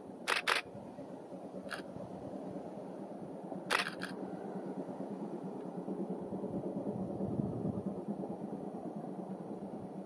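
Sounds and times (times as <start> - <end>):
steady low rumble: 0.0 - 10.0
camera shutter clicks: 0.3 - 0.6, 3.7 - 4.2.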